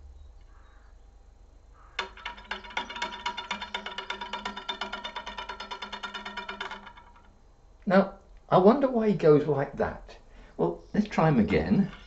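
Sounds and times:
toy woodpecker tapping on metal rod: 0:01.8 - 0:07.4.

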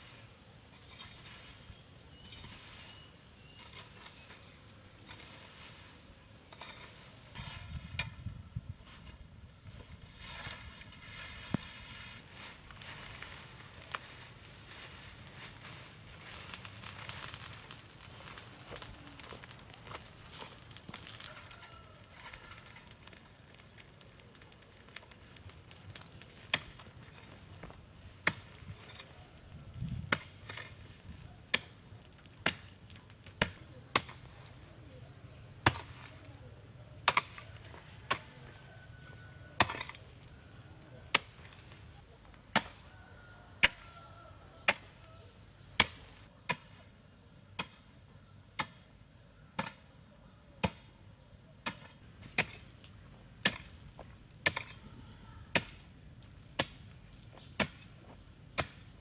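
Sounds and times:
hoe striking earth: 0:00.7 - 0:04.4, 0:05.0 - 0:08.3, 0:26.4 - 0:34.5, 0:35.4 - 0:36.1, 0:37.0 - 0:38.3, 0:39.4 - 0:40.4, 0:41.1 - 0:41.9, 0:42.5 - 0:43.0, 0:43.6 - 0:44.0, 0:44.6 - 0:45.0, 0:45.8 - 0:47.0, 0:47.6 - 0:48.0, 0:48.6 - 0:48.9, 0:49.5 - 0:49.9, 0:51.6 - 0:52.8, 0:53.4 - 0:55.9, 0:56.5 - 0:59.0.

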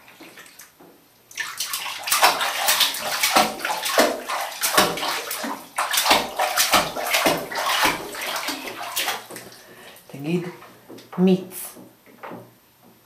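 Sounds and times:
hands splashing bathwater: 0:00.0 - 0:10.0.

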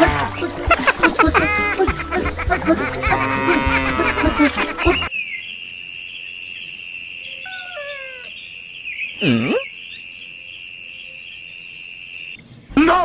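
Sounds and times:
bird chirps: 0:04.8 - 0:13.0.

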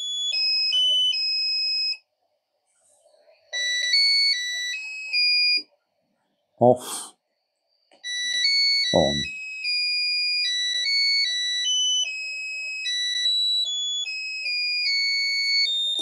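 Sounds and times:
faint radio hiss: 0:02.1 - 0:05.1
electronic beeping melody: 0:08.9 - 0:09.3.

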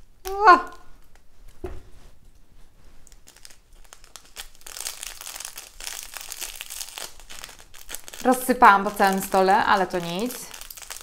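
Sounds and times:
plastic sachet crinkling: 0:03.0 - 0:11.0.

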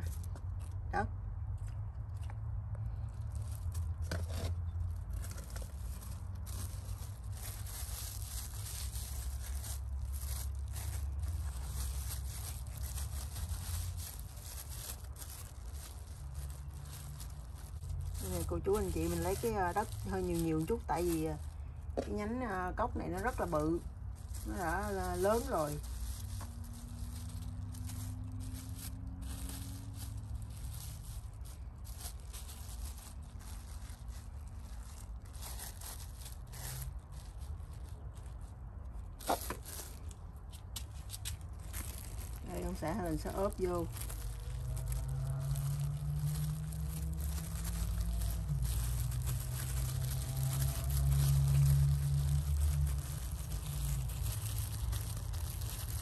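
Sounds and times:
steady low rumble: 0:00.0 - 0:56.0
soil rustling by hand: 0:03.0 - 0:38.1.

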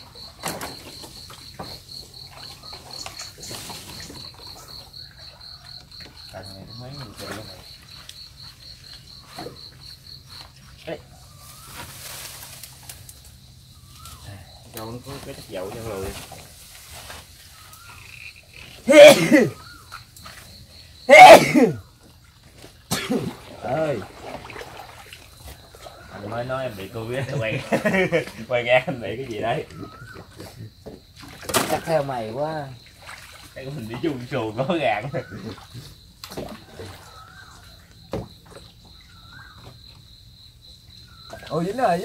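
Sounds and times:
insect chirping: 0:00.0 - 0:42.0
man coughing: 0:18.9 - 0:19.6, 0:21.1 - 0:21.8, 0:22.9 - 0:23.4.

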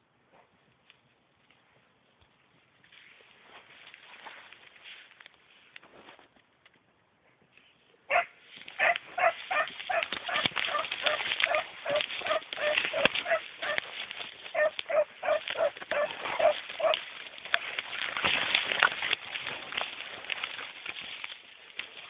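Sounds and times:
twigs and brush crackling: 0:00.7 - 0:22.0
hounds baying: 0:08.1 - 0:17.7.

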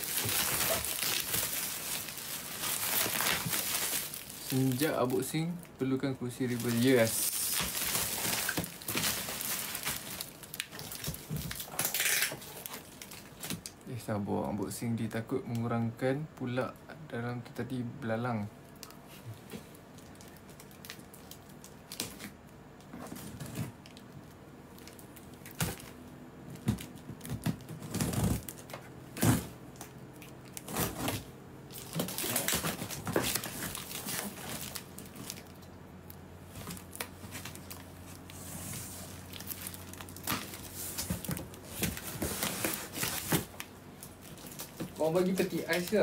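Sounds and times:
cardboard tearing and crinkling: 0:00.0 - 0:05.3, 0:06.3 - 0:13.7, 0:26.6 - 0:29.6, 0:30.2 - 0:35.5, 0:36.4 - 0:46.0.

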